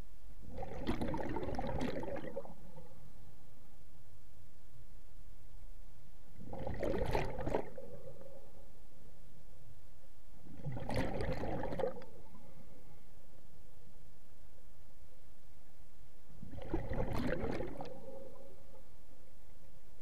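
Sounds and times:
faint steady hum: 0:00.0 - 0:20.0
regulator bubbles underwater: 0:00.4 - 0:03.0, 0:06.4 - 0:08.7, 0:10.5 - 0:12.5, 0:16.4 - 0:18.9.

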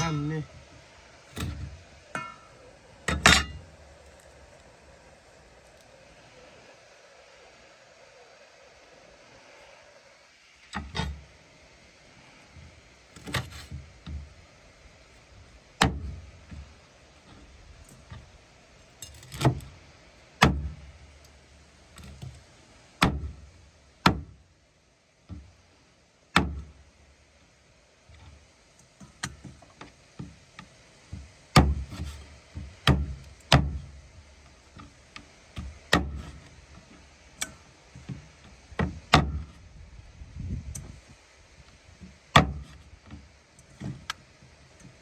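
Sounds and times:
cleaver chopping meat on wood: 0:32.8 - 0:33.8.

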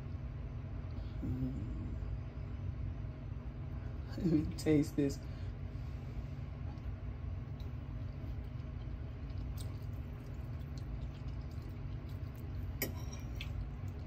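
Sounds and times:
low hum: 0:00.0 - 0:14.0
fork clinking on a plate: 0:12.8 - 0:13.5.

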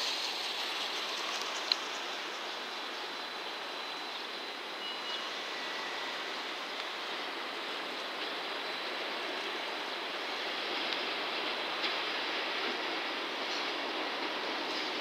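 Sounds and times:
freight train rumbling: 0:00.0 - 0:15.0
faint thin high tone: 0:04.8 - 0:06.1.

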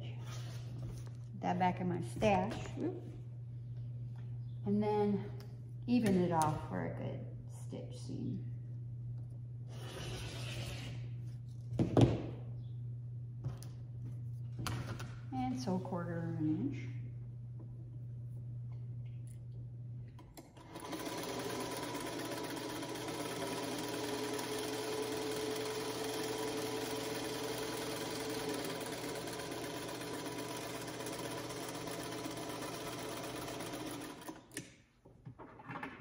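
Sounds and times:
electric sewing machine running: 0:20.4 - 0:34.6.

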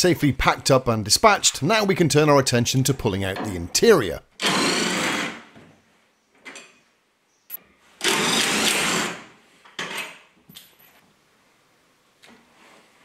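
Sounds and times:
power tool spinning bolt: 0:08.0 - 0:09.2.

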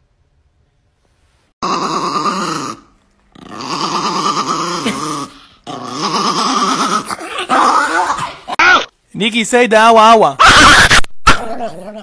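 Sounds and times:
small dog growling: 0:01.6 - 0:08.9.

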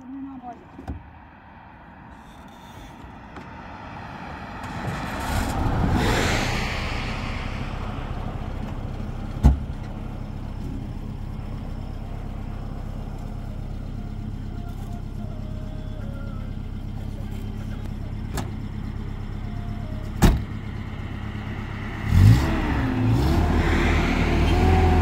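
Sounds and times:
vehicle engine low rumble: 0:00.0 - 0:25.0.

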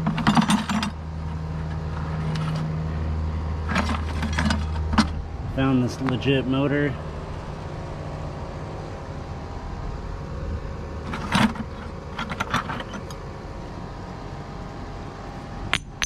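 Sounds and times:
scrap metal clinking in a bucket: 0:00.0 - 0:01.0, 0:03.7 - 0:05.1, 0:11.1 - 0:13.1
steady low rumble: 0:00.0 - 0:16.0.

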